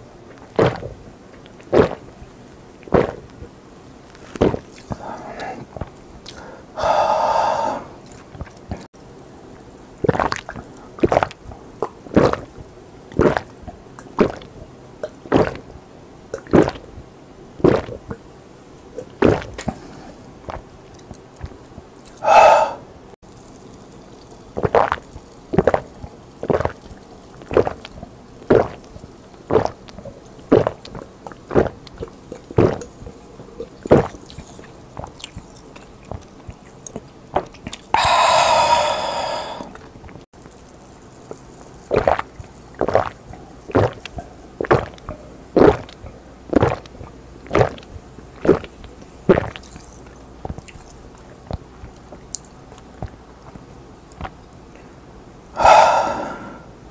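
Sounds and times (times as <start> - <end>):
person gulping a drink: 0.3 - 2.1, 2.8 - 3.3, 4.2 - 8.9, 10.0 - 15.7, 16.3 - 16.9, 17.6 - 18.2, 19.0 - 22.8, 23.4 - 54.4, 55.6 - 56.7
loud breath out: 6.4 - 8.0, 22.2 - 22.8, 38.0 - 39.7, 55.6 - 56.7
loud swallows: 37.9 - 39.8, 55.6 - 56.7.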